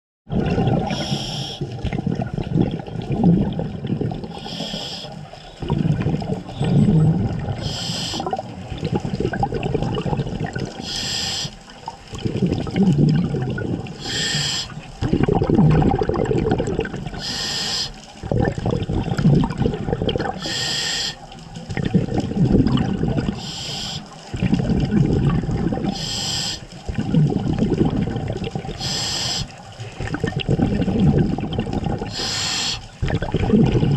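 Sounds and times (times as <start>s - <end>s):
exhaled air bubbling: 0.3s - 33.9s
regulator inhalation hiss: 0.9s - 1.7s, 4.4s - 5.3s, 7.6s - 8.3s, 10.8s - 11.7s, 14.0s - 14.9s, 17.2s - 18.1s, 20.4s - 21.3s, 23.3s - 24.2s, 25.9s - 26.8s, 28.8s - 29.6s, 32.1s - 33.0s.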